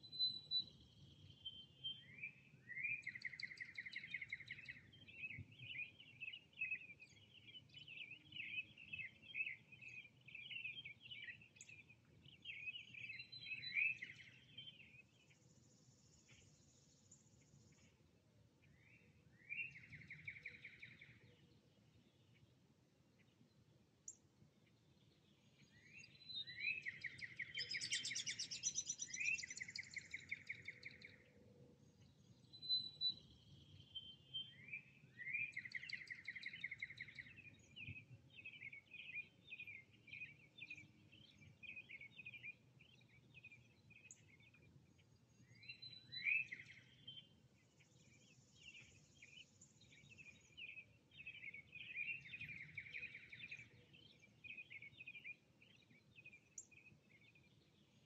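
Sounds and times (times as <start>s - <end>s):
faint steady background hush: 15.0s - 19.3s
songbirds trilling: 25.8s - 31.4s.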